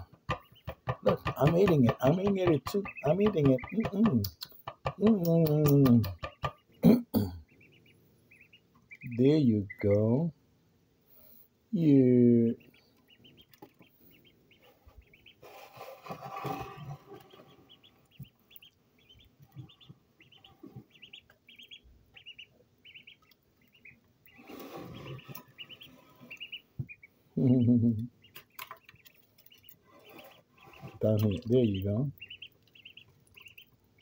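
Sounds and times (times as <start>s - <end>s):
duckling peeping: 0.0s - 10.3s, 11.8s - 34.0s
rustling and scraping: 14.6s - 18.3s, 24.3s - 26.6s, 28.4s - 31.4s.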